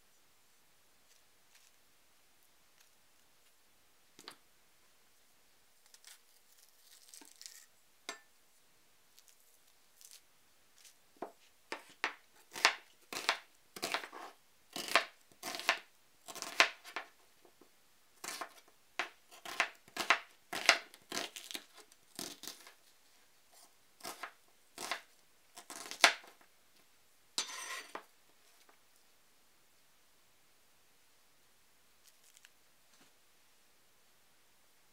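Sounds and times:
knife slicing onion on board: 0:11.2 - 0:17.2, 0:18.2 - 0:22.8, 0:23.6 - 0:26.4, 0:27.4 - 0:28.1
knife rasp: 0:27.4 - 0:28.0.

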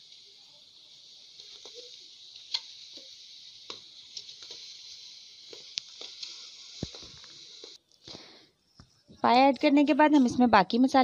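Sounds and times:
steady hiss: 0:00.0 - 0:08.8.

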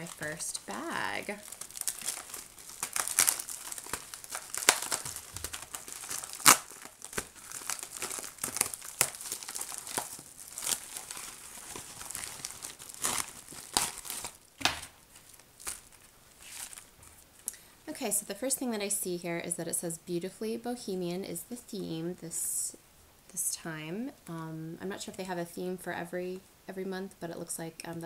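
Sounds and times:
plastic mailer crinkling: 0:00.0 - 0:17.2.

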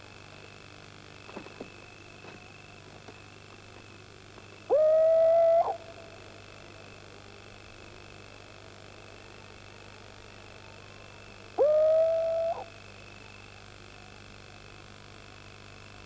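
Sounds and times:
owl hooting: 0:04.6 - 0:06.3, 0:11.5 - 0:12.8.

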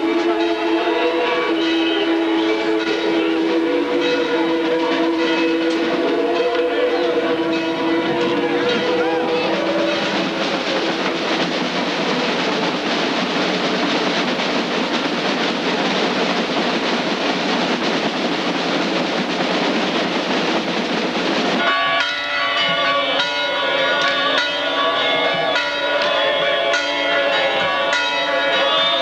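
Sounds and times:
church bells pealing: 0:00.0 - 0:13.4, 0:21.5 - 0:29.0
dense steady din: 0:02.2 - 0:29.0.

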